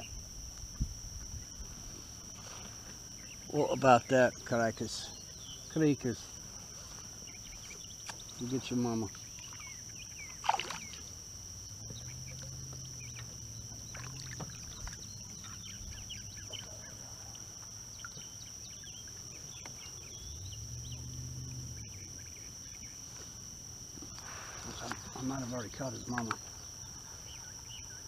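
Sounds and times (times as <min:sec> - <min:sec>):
high-pitched insect drone: 0:00.0 - 0:28.0
low hum: 0:09.1 - 0:23.1.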